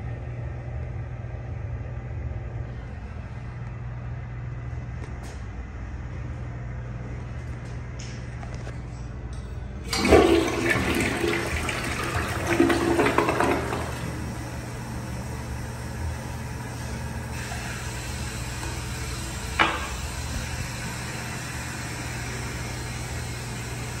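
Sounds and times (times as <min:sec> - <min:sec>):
steady hum: 0:00.0 - 0:24.0
toilet flushing: 0:09.8 - 0:24.0.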